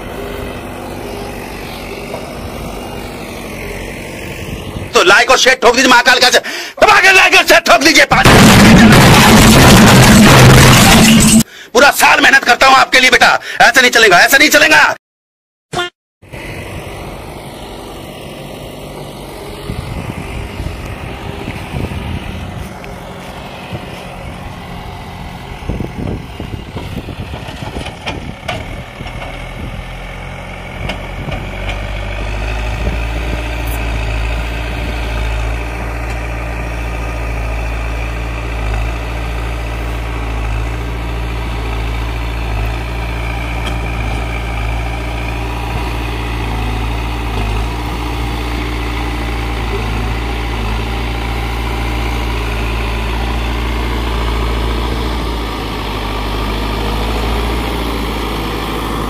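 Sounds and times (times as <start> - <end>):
diesel engine running: 0.0 - 7.3, 7.9 - 11.6, 16.2 - 59.0
knocks and clatter: 8.3 - 11.4.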